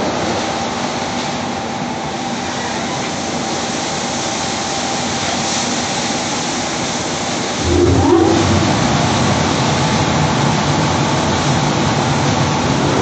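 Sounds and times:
car wash brushes and water jets: 0:02.8 - 0:13.0
low motor hum: 0:07.6 - 0:10.6.

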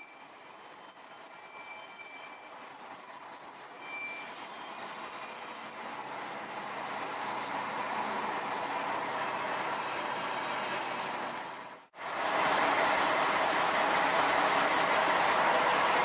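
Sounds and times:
thin high squeal: 0:00.0 - 0:07.5, 0:09.1 - 0:11.9
railcar rolling noise: 0:00.0 - 0:16.0.

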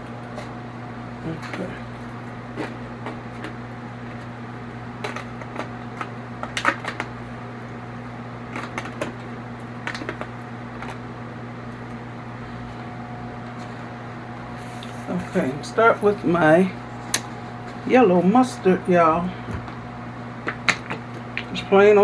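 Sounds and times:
steady electrical hum: 0:00.0 - 0:22.0
foil pan crinkling and clicking: 0:05.0 - 0:07.2, 0:08.5 - 0:11.0.

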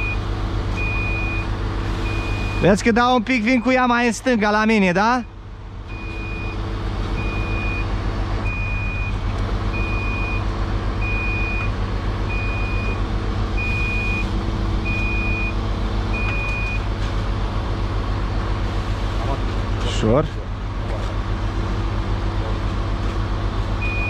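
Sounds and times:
diesel engine running: 0:00.0 - 0:24.0
high warning beeps: 0:07.2 - 0:07.9, 0:13.6 - 0:15.6.

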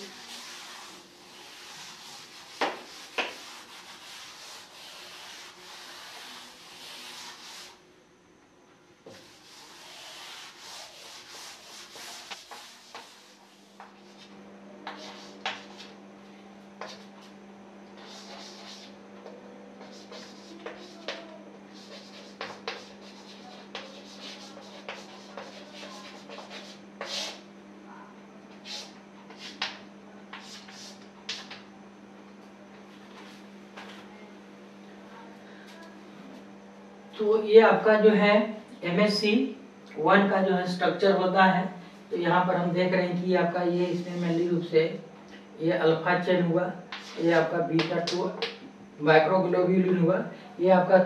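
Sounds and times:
duster scraping on blackboard: 0:00.0 - 0:07.8, 0:09.0 - 0:16.0, 0:16.8 - 0:17.3, 0:18.0 - 0:19.0, 0:19.8 - 0:27.4, 0:28.6 - 0:31.6, 0:46.9 - 0:48.5.

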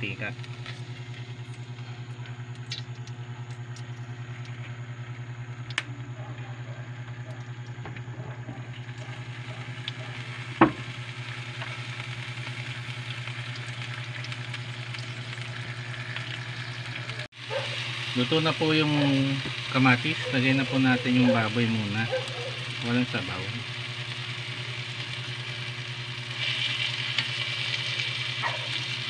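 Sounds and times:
loud frying: 0:00.0 - 0:06.2, 0:06.9 - 0:29.0
steady low hum: 0:00.0 - 0:29.0
oil sizzling in a pan: 0:08.7 - 0:29.0.

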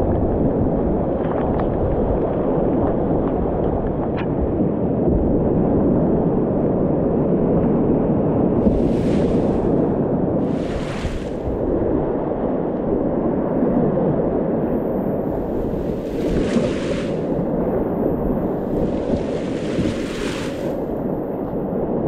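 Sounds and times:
hissing water splash: 0:08.6 - 0:09.8, 0:10.4 - 0:11.6, 0:15.3 - 0:21.1
whitewater rapids rushing: 0:15.3 - 0:17.4, 0:18.5 - 0:20.8.

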